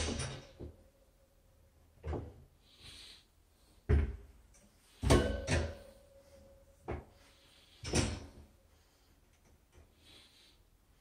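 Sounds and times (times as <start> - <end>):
wire shelving knocks and rattles: 0.0 - 0.8, 4.9 - 6.0.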